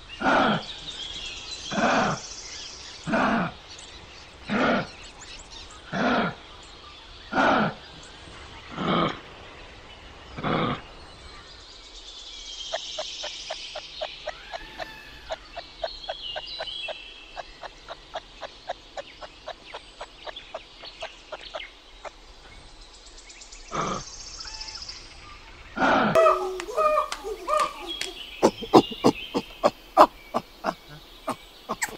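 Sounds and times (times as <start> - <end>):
bird clicking calls: 13.0 - 22.2, 26.2 - 31.9
bird whistling phrases: 26.2 - 31.9.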